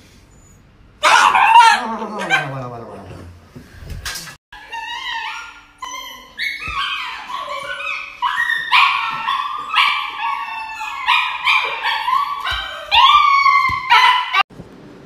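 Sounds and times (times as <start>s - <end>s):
dog yelping and howling: 1.0s - 2.7s, 4.6s - 14.5s.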